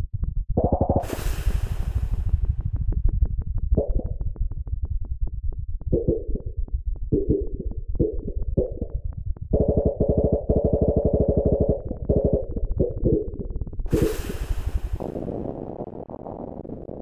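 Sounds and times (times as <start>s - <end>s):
low synth drone: 0.7s - 16.0s
fast ticking pulses: 3.0s - 13.6s.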